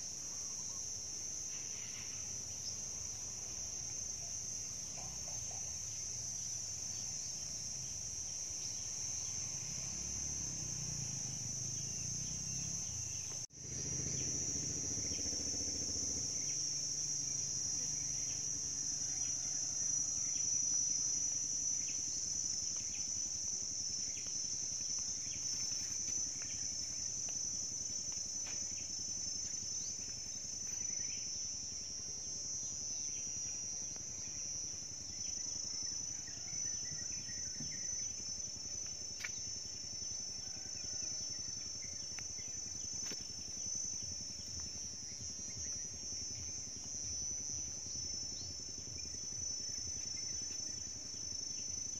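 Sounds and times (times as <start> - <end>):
insects trilling drone: 0.0 - 51.9.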